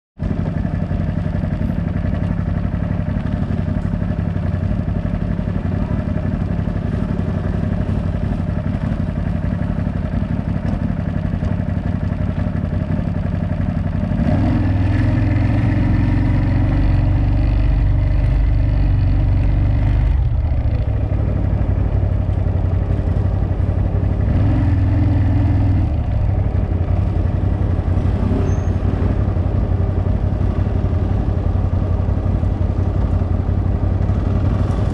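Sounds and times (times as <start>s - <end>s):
atv engine revving: 11.4s - 34.9s.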